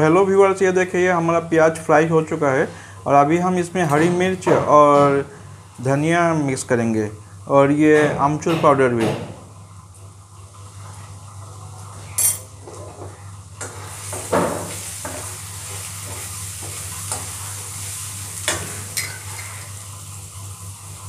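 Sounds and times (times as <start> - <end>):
food sizzling in a pan: 10.2 - 21.0.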